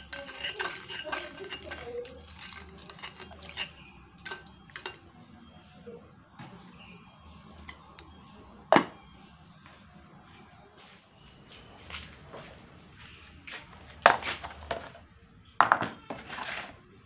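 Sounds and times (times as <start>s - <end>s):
glass lid clinking on pot: 0.0s - 5.0s
stick tapping ceramic pot: 0.0s - 5.0s.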